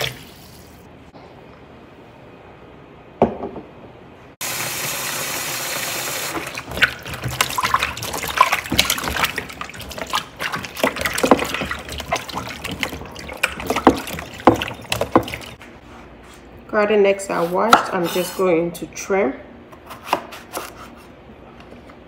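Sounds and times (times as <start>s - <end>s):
kitchen tap running: 4.4s - 15.6s
splashing water in a bowl: 6.3s - 15.6s.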